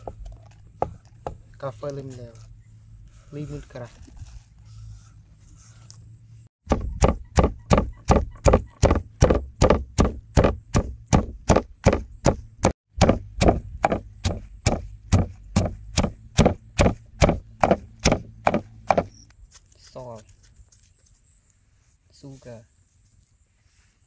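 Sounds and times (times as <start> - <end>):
pestle pounding in wooden mortar: 6.6 - 19.2.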